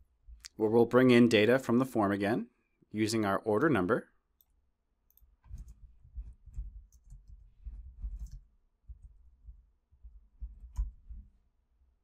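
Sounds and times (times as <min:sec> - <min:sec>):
computer keyboard typing: 0:04.4 - 0:09.1.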